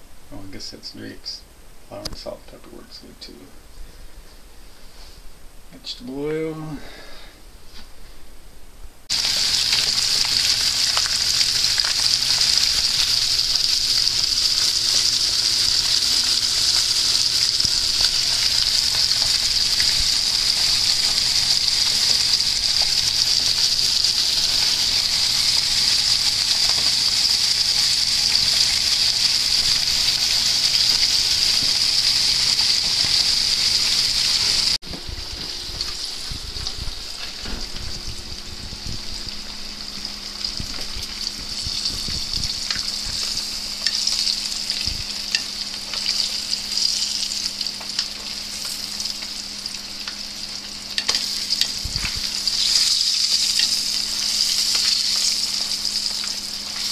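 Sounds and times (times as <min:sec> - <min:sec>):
fish sizzling in hot oil: 0:09.1 - 0:34.8, 0:38.8 - 0:56.9.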